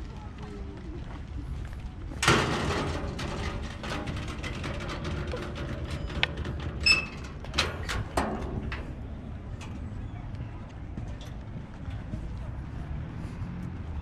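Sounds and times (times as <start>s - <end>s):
footsteps: 0.0s - 13.9s
handling knocks at metal gate: 2.2s - 9.8s
sharp clicks at gate: 2.2s - 10.4s.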